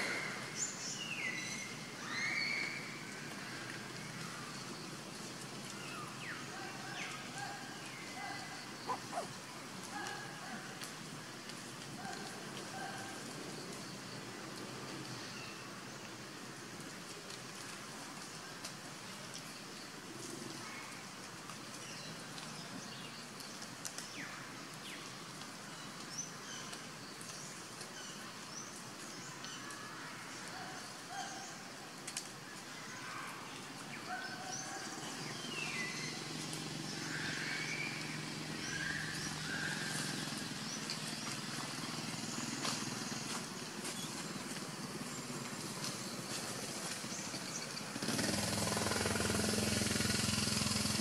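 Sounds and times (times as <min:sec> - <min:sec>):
high animal chirps: 0:08.8 - 0:09.4.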